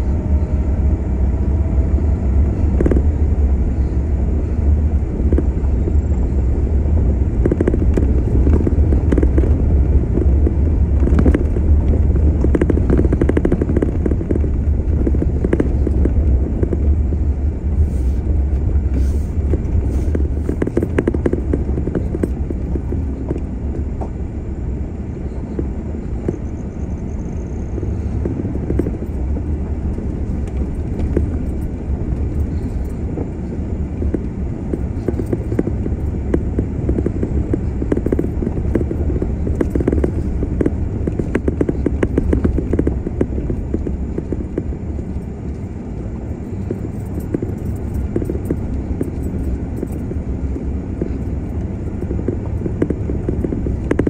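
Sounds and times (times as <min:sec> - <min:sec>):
vehicle engine and tyres rumbling: 0:00.0 - 0:54.0
ticks and knocks: 0:07.4 - 0:16.9, 0:19.5 - 0:24.1.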